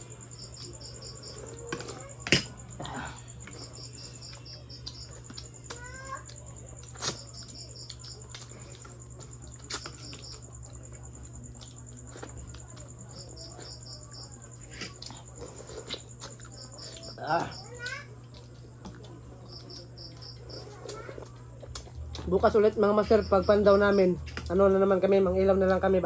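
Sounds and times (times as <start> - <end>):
crickets chirping: 0.0 - 26.0.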